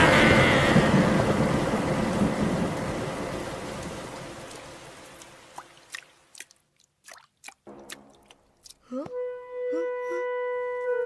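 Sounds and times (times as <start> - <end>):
rumbling thunder: 0.0 - 4.4
rain: 0.0 - 6.7
water drips: 3.7 - 9.1.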